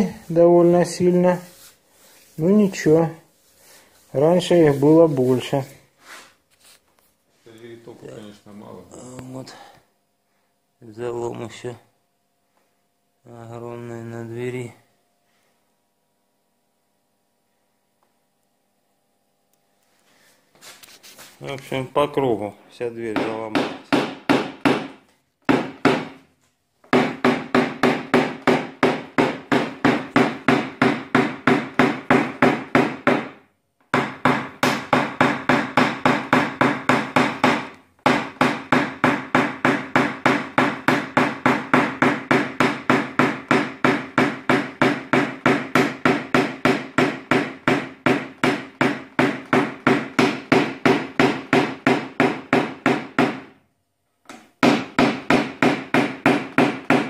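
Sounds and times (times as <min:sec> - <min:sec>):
hammer tapping punch on sheet steel: 0:23.1 - 0:26.2, 0:26.9 - 0:53.5, 0:54.3 - 0:57.0.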